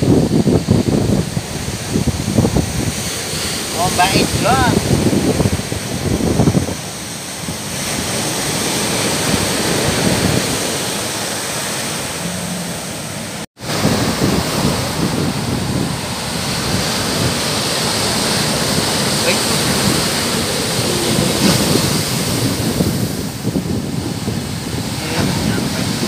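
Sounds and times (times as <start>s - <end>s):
waves breaking on a beach: 0.0s - 26.0s.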